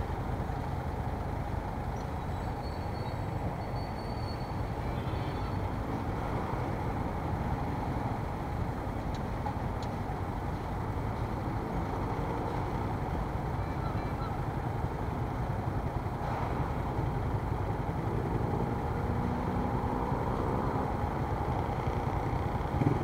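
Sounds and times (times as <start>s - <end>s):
low rumble of street traffic: 0.0s - 23.0s.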